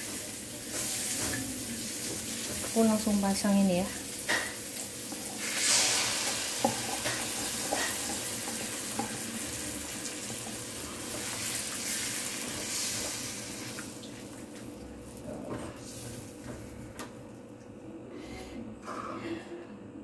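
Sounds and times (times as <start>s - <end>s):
wok sizzling: 0.0s - 15.2s.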